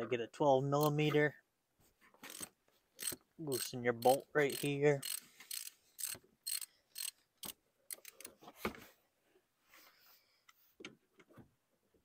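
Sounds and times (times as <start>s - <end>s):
ratchet wrench clicking: 2.3s - 8.3s.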